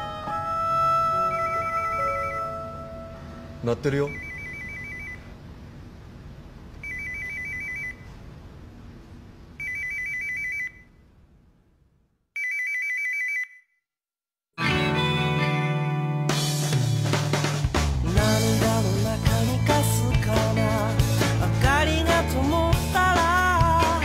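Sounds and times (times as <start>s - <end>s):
background hum: 0.0s - 12.2s
telephone trilling ring: 1.1s - 2.9s, 4.1s - 5.3s, 6.8s - 8.1s, 9.6s - 10.9s, 12.4s - 13.6s
loud music: 14.6s - 24.0s.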